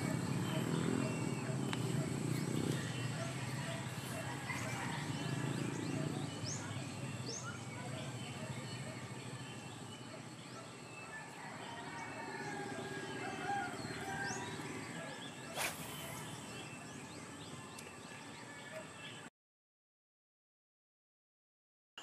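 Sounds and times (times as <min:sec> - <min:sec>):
birds chirping: 0:00.0 - 0:19.3
rooster crowing: 0:03.2 - 0:06.0, 0:11.1 - 0:15.2
fishing rod swish: 0:15.4 - 0:16.5.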